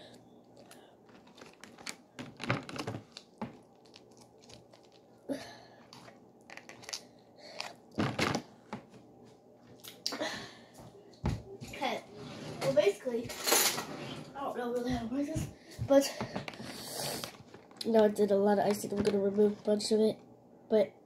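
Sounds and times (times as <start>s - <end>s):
plastic bags crinkling: 0.6s - 8.5s, 17.2s - 18.0s.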